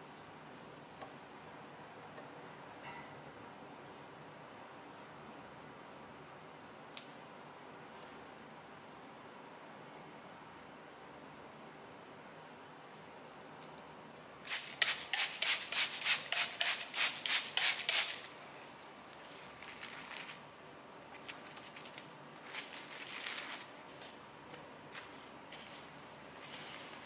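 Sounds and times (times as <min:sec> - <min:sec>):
cling wrap pulled off roll: 0:19.1 - 0:20.4
plastic wrap crinkling: 0:19.1 - 0:20.4.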